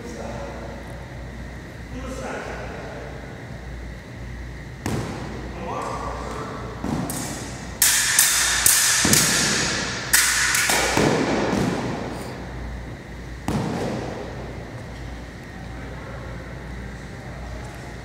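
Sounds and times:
sabre blades clashing: 7.1 - 11.4.

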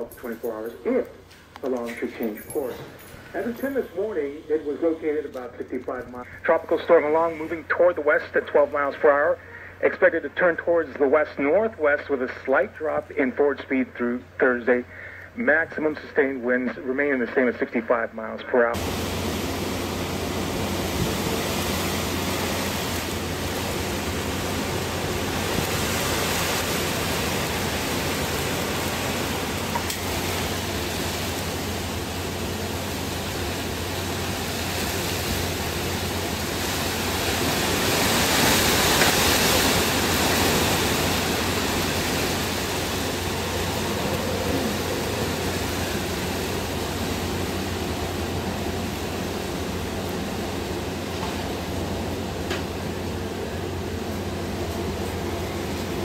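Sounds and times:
storm wind and rain rushing: 18.7 - 56.0.

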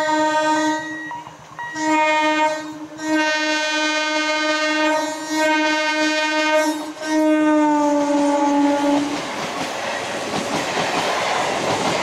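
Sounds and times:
train horn blasts: 0.0 - 9.2.

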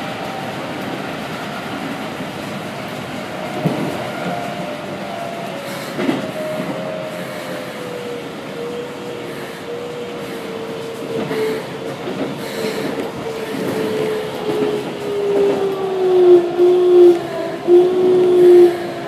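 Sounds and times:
wheels rumbling on rails: 0.0 - 19.0.

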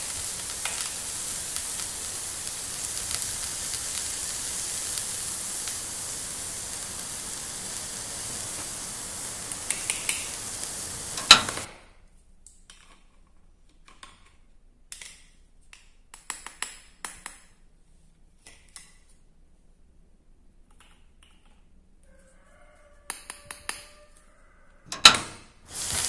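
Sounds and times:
steady hiss: 0.0 - 12.0, 24.9 - 26.0.

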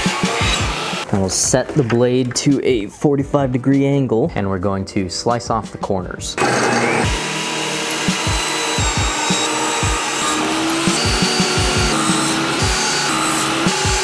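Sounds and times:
table saw cutting wood: 0.0 - 1.1, 6.4 - 14.0
background music with low beat: 0.0 - 6.4, 7.8 - 14.0.

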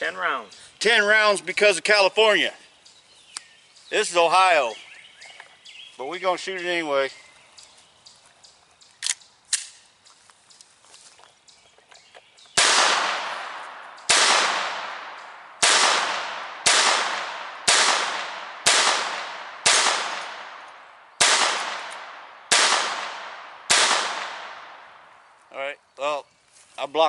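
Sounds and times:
pistol shots with echo: 12.6 - 25.0.

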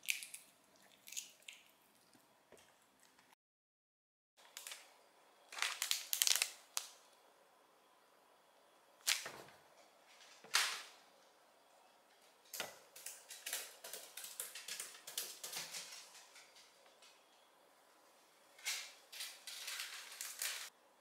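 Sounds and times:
plastic wrapper crinkling: 5.5 - 7.0.

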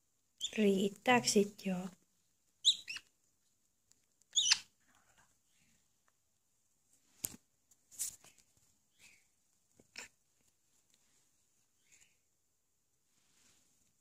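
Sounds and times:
high squeaky parrot calls: 2.6 - 3.1, 4.3 - 4.7.

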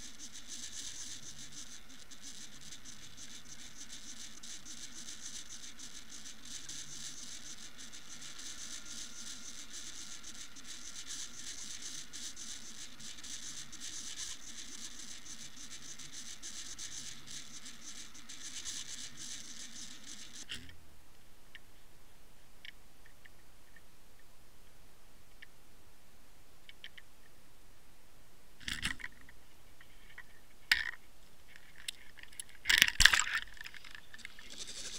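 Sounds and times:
crackling hiss of underwater lake: 0.0 - 20.7.

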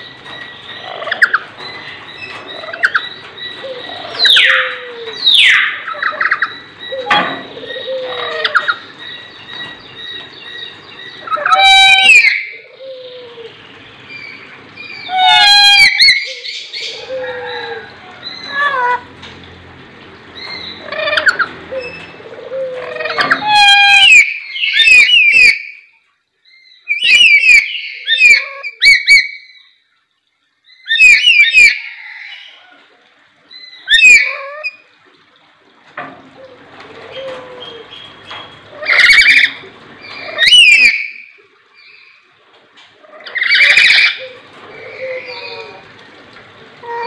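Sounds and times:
lories shrill calls: 38.8 - 42.1.

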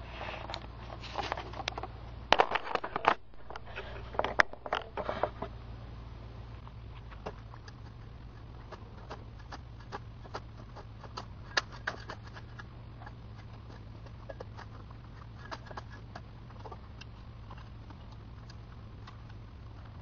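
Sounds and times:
low steady hum: 0.0 - 20.0
shovel and rake scraping dirt: 6.9 - 18.0.

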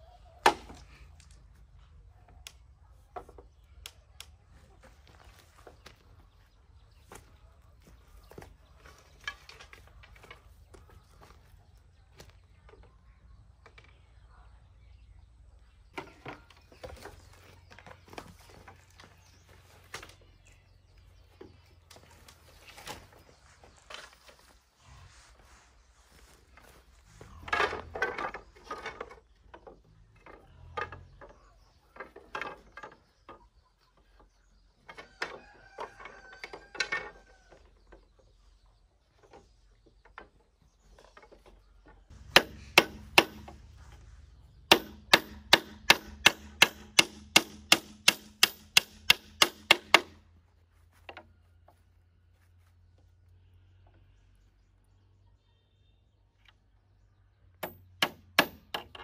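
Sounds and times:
handling knocks and clatter: 26.5 - 38.3
tool striking wood: 42.1 - 43.7, 44.6 - 50.2, 57.6 - 59.0.

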